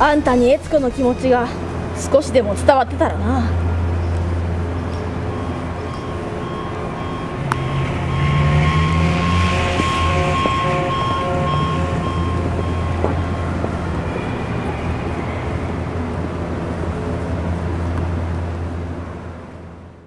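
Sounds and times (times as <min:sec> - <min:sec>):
city background hum: 0:00.0 - 0:20.0
repeating beep: 0:05.3 - 0:13.5.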